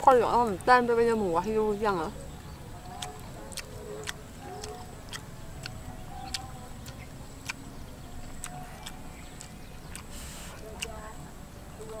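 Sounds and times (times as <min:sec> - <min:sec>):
person eating with crunches: 0:02.7 - 0:11.0.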